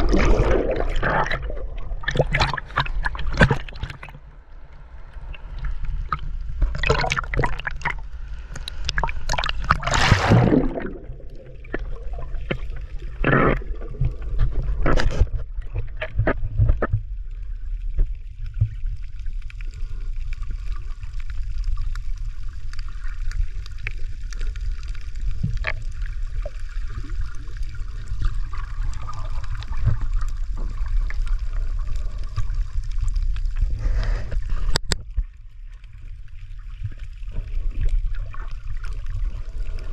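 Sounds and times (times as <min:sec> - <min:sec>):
water sloshing and splashing: 0:00.0 - 0:21.6, 0:22.6 - 0:39.9
faint underwater clicks: 0:00.0 - 0:39.9
muffled underwater rumble: 0:00.0 - 0:39.9.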